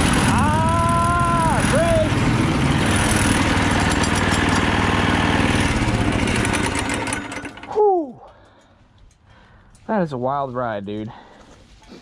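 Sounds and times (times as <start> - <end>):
go-kart engines running: 0.0 - 8.3
loud whoop falling in pitch: 0.3 - 2.1.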